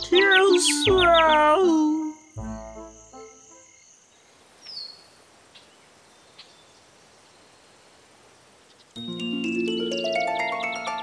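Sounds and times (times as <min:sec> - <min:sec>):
insect chirps: 0:00.0 - 0:09.2
insects hissing: 0:00.0 - 0:09.2.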